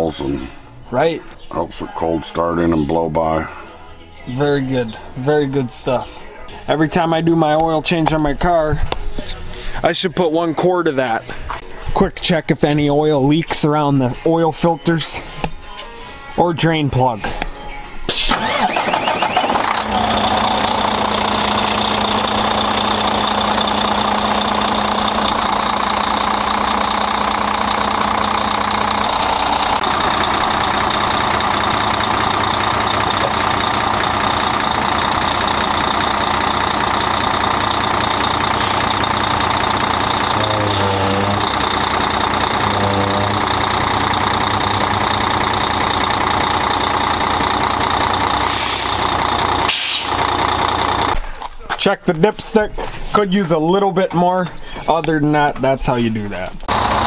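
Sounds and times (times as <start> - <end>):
diesel engine idling: 18.3 - 51.2, 56.6 - 57.0
short hiss: 48.4 - 49.1, 49.7 - 50.1.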